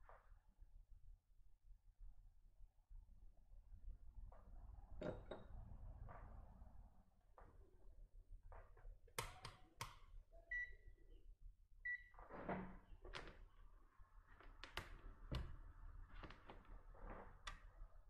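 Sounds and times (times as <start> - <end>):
multimeter electronic beeps: 10.4 - 10.9.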